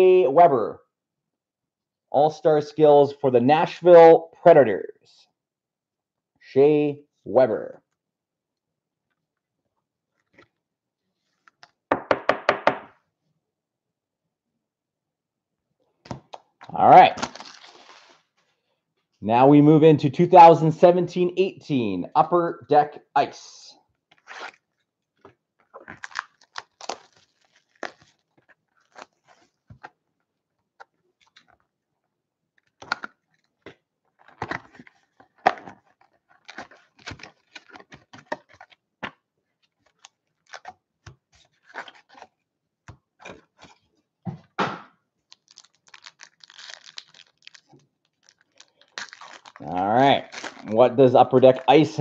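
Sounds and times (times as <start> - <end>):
foil wrappers crinkling: 17.2 - 18.2, 25.8 - 29.9, 32.6 - 38.8, 45.3 - 50.8.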